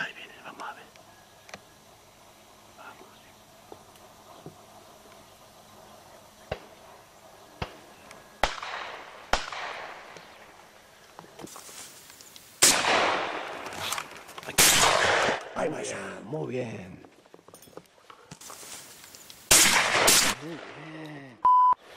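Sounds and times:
shotgun shots echoing: 8.4s - 10.2s, 12.6s - 13.6s, 14.6s - 15.6s, 19.5s - 20.8s.

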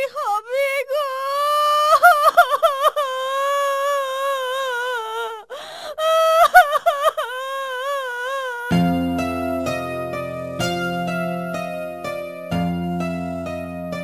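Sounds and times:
woman wailing: 0.0s - 8.8s
woman sobbing breath: 1.9s - 8.8s.

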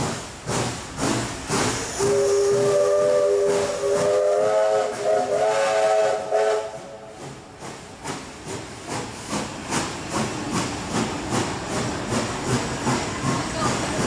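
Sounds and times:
steam locomotive whistle: 1.9s - 7.4s
train carriages clattering: 6.0s - 14.0s.

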